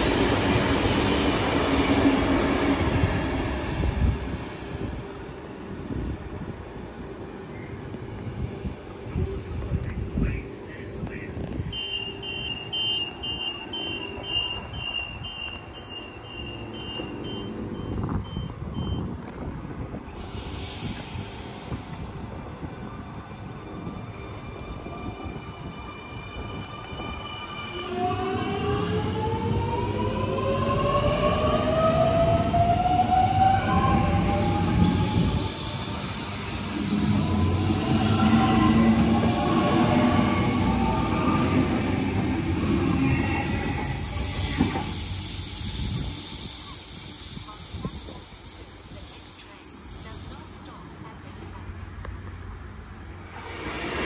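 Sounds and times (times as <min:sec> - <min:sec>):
train rumbling at platform: 0:00.0 - 0:54.0
two-tone door warning beeps: 0:11.6 - 0:19.1
wheel and rail rumble: 0:30.8 - 0:54.0.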